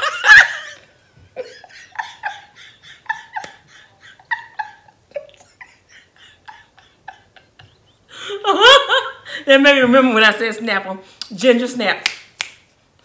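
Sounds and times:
woman laughing: 0:00.0 - 0:09.4.

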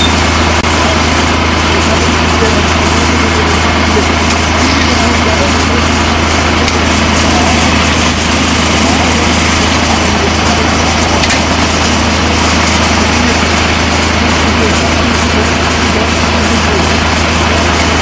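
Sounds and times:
fire engine running: 0:00.0 - 0:18.0
indistinct voices: 0:00.0 - 0:18.0.

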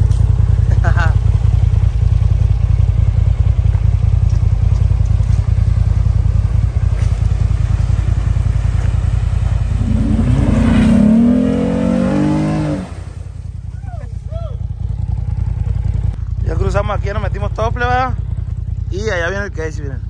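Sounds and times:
vehicle engine rumbling: 0:00.0 - 0:20.0
engine revving: 0:03.7 - 0:13.5.

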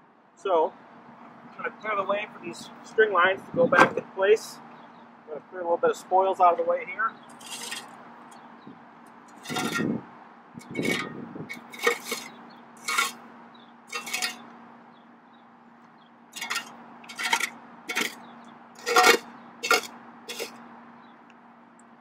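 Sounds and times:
shovel scraping dirt: 0:07.3 - 0:08.0, 0:09.3 - 0:10.0, 0:10.6 - 0:13.3, 0:13.9 - 0:14.5, 0:16.3 - 0:20.6.

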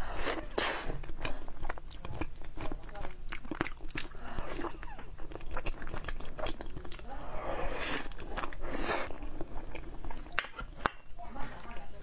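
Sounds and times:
close chewing and biting: 0:00.0 - 0:10.8.

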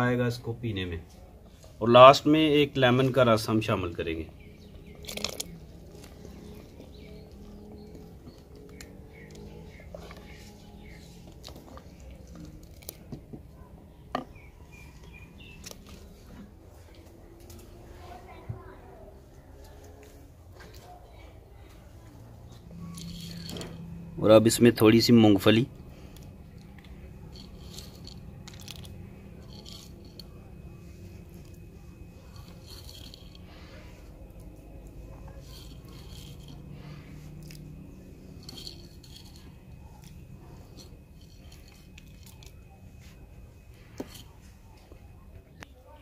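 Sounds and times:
low background hum: 0:00.0 - 0:46.0
small birds chirping: 0:01.0 - 0:20.0
peanuts crumbling faint crackles: 0:04.8 - 0:13.1.

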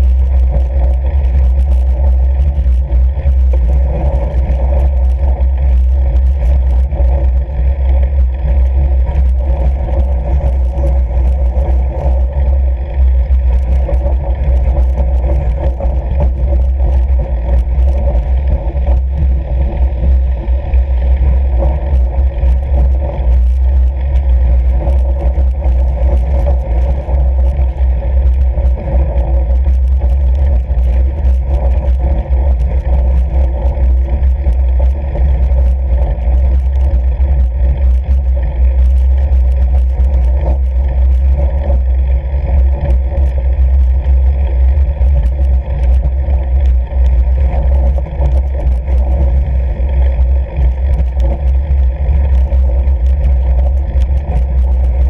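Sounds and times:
tyre and wind rumble: 0:00.0 - 0:55.0.

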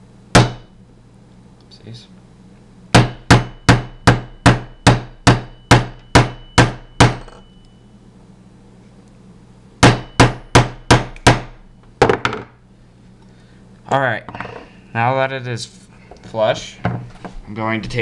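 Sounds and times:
hammer tapping a metal punch: 0:02.9 - 0:07.4, 0:09.8 - 0:12.4.

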